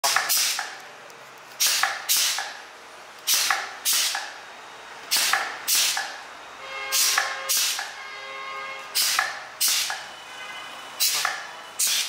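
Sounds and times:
compressed air hisses: 0:00.3 - 0:00.6, 0:01.6 - 0:02.5, 0:03.3 - 0:04.2, 0:05.1 - 0:06.0, 0:07.0 - 0:07.8, 0:09.0 - 0:10.0, 0:11.0 - 0:12.0.

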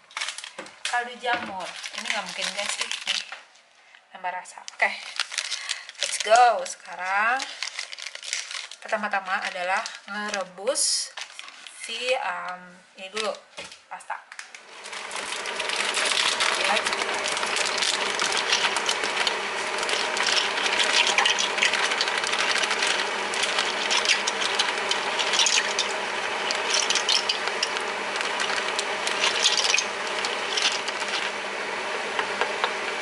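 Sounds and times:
plastic bag crinkling: 0:00.0 - 0:03.5, 0:04.8 - 0:12.1, 0:14.6 - 0:31.5
pasta stirred in pan: 0:05.0 - 0:10.4, 0:14.6 - 0:33.0.

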